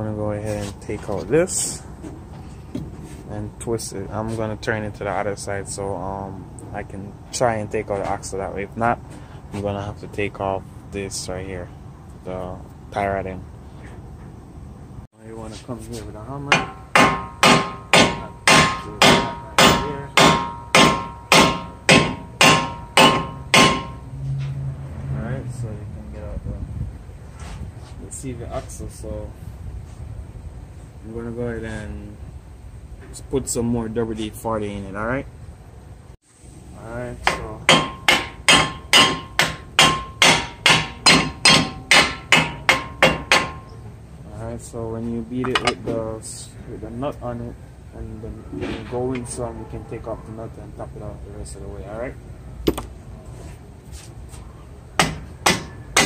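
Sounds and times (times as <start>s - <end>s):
hammer striking metal axle: 16.4s - 24.6s, 37.2s - 43.8s, 45.4s - 46.0s, 52.6s - 53.0s, 55.0s - 56.0s.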